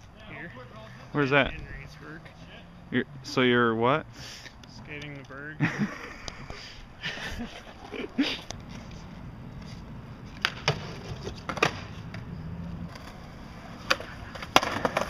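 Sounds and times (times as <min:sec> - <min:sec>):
skateboard wheels rolling on concrete: 0:04.2 - 0:15.0
skateboard clacks: 0:10.3 - 0:15.0.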